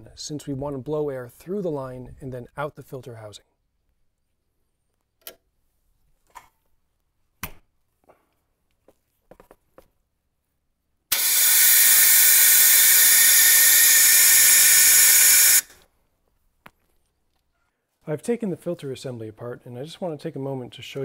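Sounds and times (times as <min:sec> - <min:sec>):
air hissing through fuel line: 0:11.1 - 0:15.8.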